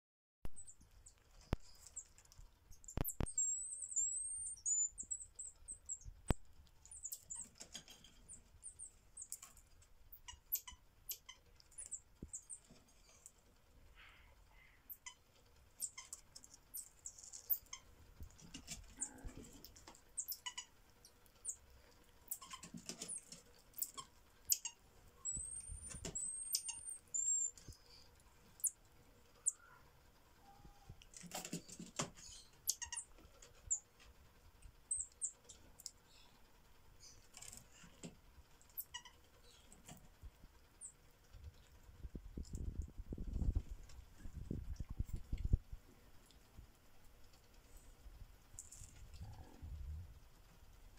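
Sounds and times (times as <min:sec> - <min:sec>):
marmosets chirping: 0:00.6 - 0:02.1, 0:02.7 - 0:13.2, 0:14.6 - 0:15.2, 0:15.8 - 0:21.6, 0:22.2 - 0:28.8, 0:29.4 - 0:29.8, 0:30.4 - 0:33.9, 0:34.9 - 0:36.4, 0:37.0 - 0:38.0, 0:38.6 - 0:40.0, 0:40.8 - 0:41.0.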